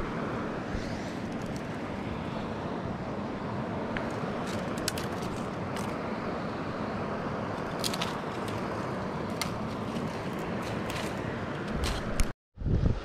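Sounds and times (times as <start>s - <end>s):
creek water over rocks: 0.9s - 12.3s
handling clicks and scrapes: 4.0s - 6.0s, 7.6s - 12.3s.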